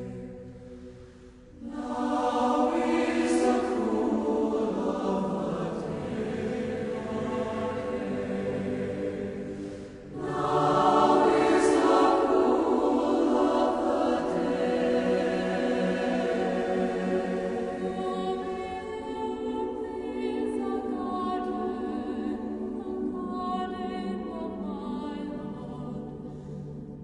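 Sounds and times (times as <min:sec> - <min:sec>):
choral music: 0:00.0 - 0:27.0.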